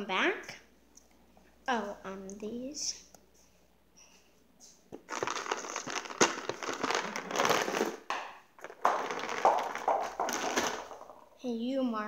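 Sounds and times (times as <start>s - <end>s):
plastic container scraping and rustling: 5.0s - 11.2s.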